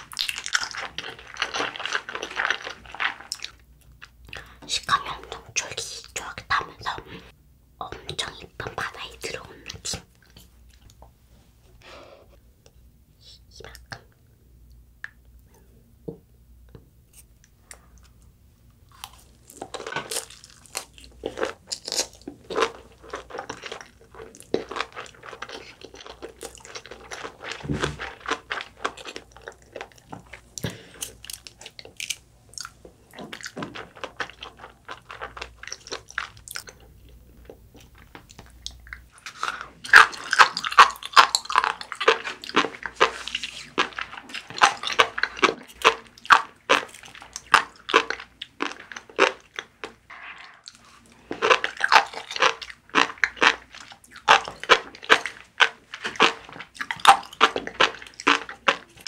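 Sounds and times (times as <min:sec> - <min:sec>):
crunchy chewing: 0:00.0 - 0:04.5, 0:18.9 - 0:59.0.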